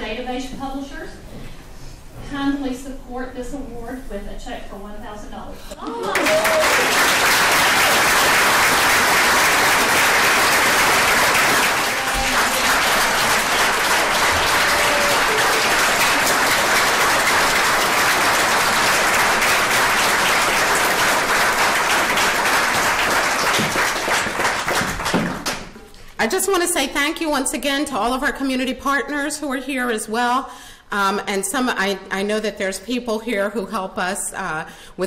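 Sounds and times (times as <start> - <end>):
crowd applauding: 5.9 - 25.9.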